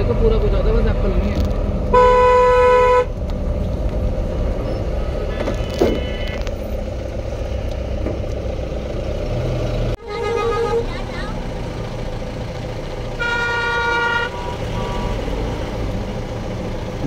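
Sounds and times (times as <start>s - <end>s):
engines and tyres on road: 0.0s - 17.0s
vehicle horn blast: 1.9s - 3.1s, 5.3s - 6.5s, 10.0s - 11.0s, 13.2s - 15.2s.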